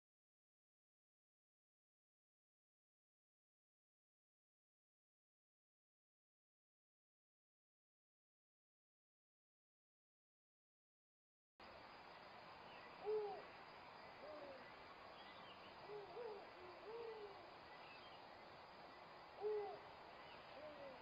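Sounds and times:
background hiss: 0:11.6 - 0:21.0
owl hooting: 0:13.0 - 0:13.5, 0:14.1 - 0:14.7, 0:15.7 - 0:17.6, 0:19.4 - 0:21.0.

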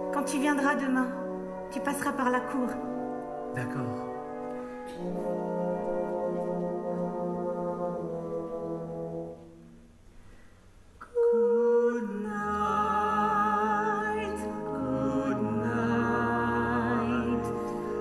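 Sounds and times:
woman singing with vibrato: 0:00.0 - 0:03.1, 0:11.0 - 0:18.0
brass band playing: 0:01.0 - 0:09.8, 0:14.4 - 0:18.0.

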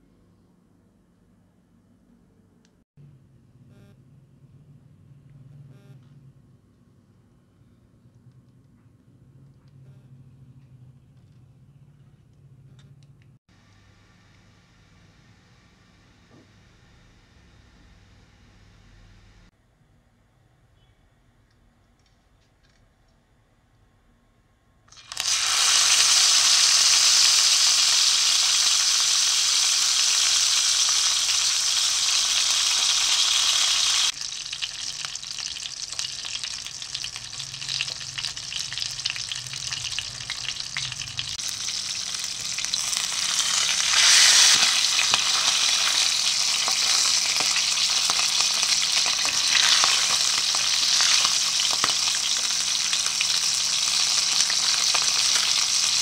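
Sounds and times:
fish sizzling in hot oil: 0:24.9 - 0:56.0.

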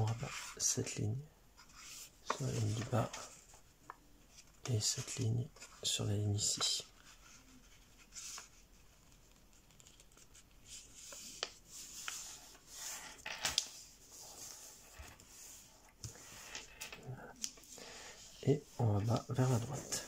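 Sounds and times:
paper rustling and rubbing: 0:01.6 - 0:16.9, 0:17.5 - 0:20.0
paper clicks: 0:09.2 - 0:10.4.

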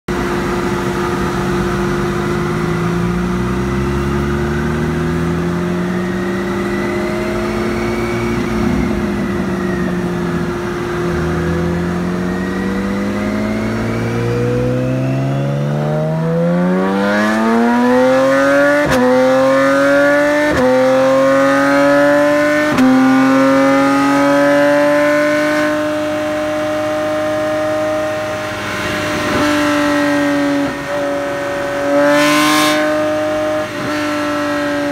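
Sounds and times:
motorcycle engine accelerating: 0:00.1 - 0:34.9.

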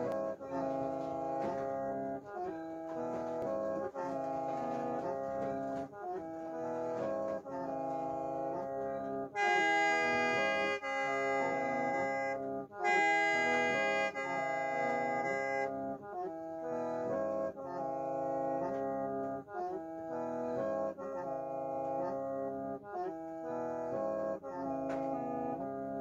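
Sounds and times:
bamboo mouth organ chords: 0:05.1 - 0:24.9.

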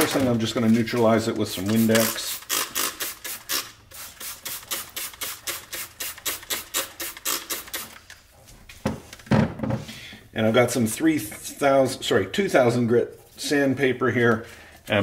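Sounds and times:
spray bottle squirts: 0:01.6 - 0:08.1.

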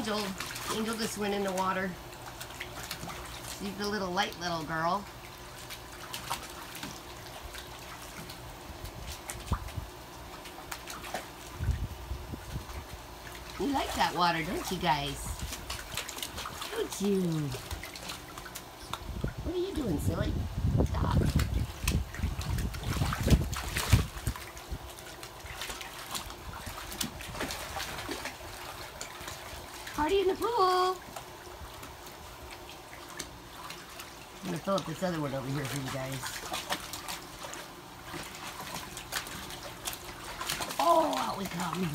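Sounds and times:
water splashing and dripping: 0:00.0 - 0:41.9.

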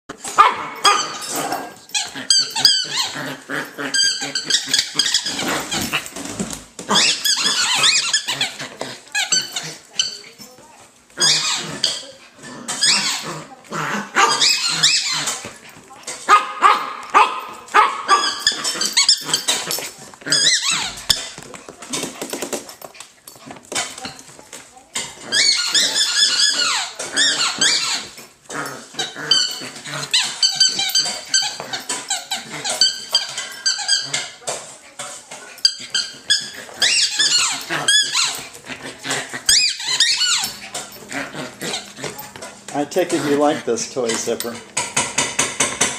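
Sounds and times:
puppy barking and growling: 0:00.1 - 0:06.2, 0:11.2 - 0:21.5, 0:35.4 - 0:43.9
puppy squealing: 0:00.4 - 0:06.1, 0:06.9 - 0:10.4, 0:11.2 - 0:15.6, 0:16.3 - 0:21.6, 0:25.2 - 0:34.4, 0:35.4 - 0:45.1.

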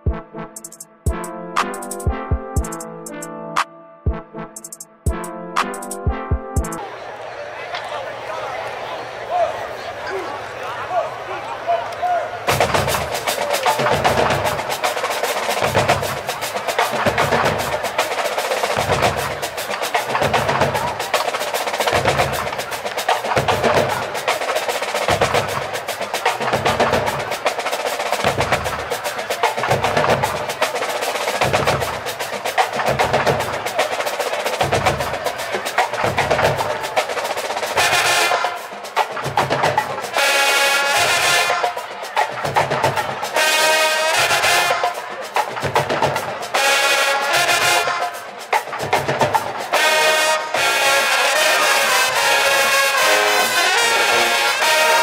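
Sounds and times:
bass drum beat: 0:00.0 - 0:03.3, 0:04.1 - 0:06.8
brass section playing: 0:00.0 - 0:06.9, 0:12.5 - 0:45.4, 0:46.2 - 0:55.0
marching drums cadence: 0:00.0 - 0:07.0, 0:12.4 - 0:55.0.

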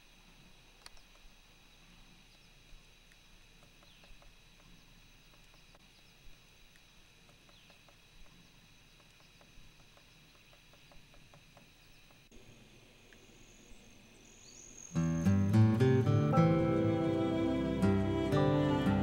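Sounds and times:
steady low hiss: 0:00.0 - 0:19.0
woodpecker tapping bark: 0:03.5 - 0:05.8, 0:07.2 - 0:12.3.

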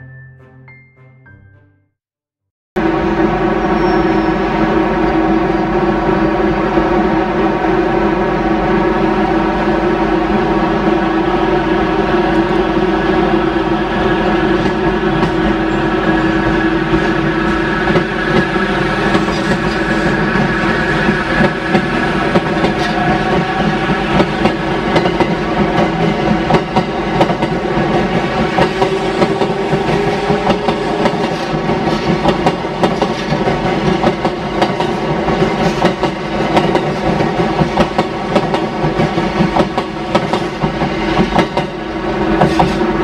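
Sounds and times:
train motor hum: 0:02.8 - 0:43.0
train wheels clicking over rail joints: 0:16.9 - 0:43.0.

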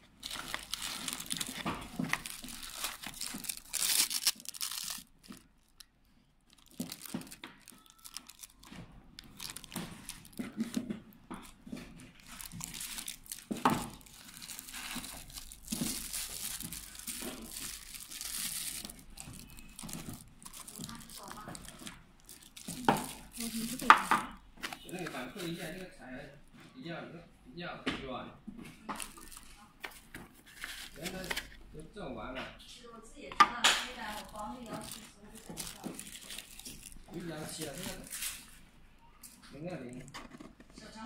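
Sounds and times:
plastic bags crinkling: 0:00.0 - 0:26.2, 0:28.8 - 0:31.7, 0:33.6 - 0:40.2.

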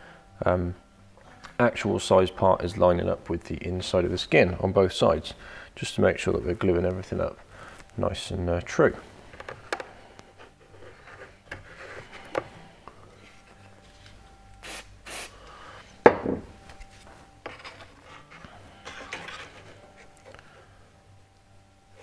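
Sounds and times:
wooden parts knocking and rubbing: 0:09.3 - 0:12.5, 0:17.4 - 0:20.3
aerosol spray hisses: 0:14.6 - 0:15.4.

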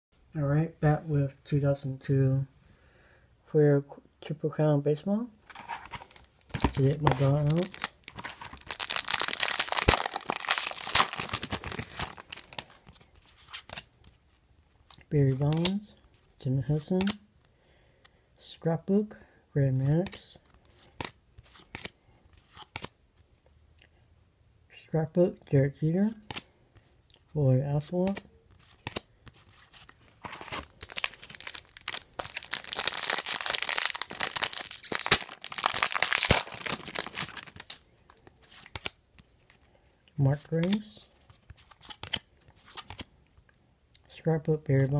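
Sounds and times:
foil wrapper tearing and crinkling: 0:05.5 - 0:12.9, 0:30.3 - 0:37.8.

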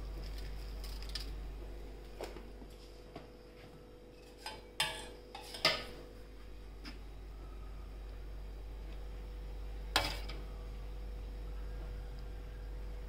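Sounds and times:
faint steady hum: 0:00.0 - 0:13.0
steel kitchen utensils clinking: 0:04.2 - 0:06.0.

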